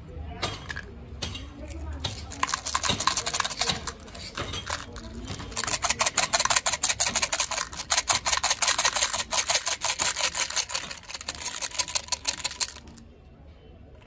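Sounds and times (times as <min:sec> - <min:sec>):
candies clattering into plastic pot: 0:00.5 - 0:13.0.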